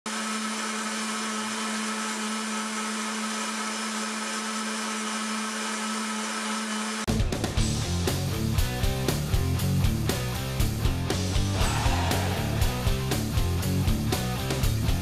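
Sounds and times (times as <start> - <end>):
blender motor humming and whining: 0.1 - 7.1.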